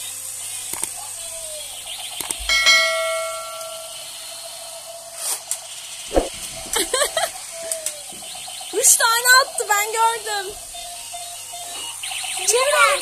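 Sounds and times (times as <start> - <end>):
bell-like chime: 2.5 - 4.2
faint steady electronic tone: 6.6 - 13.0.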